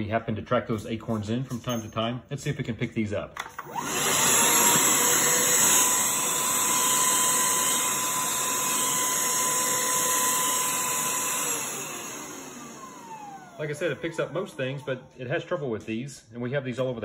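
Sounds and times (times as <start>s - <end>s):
handheld vacuum motor whine: 3.6s - 15.0s.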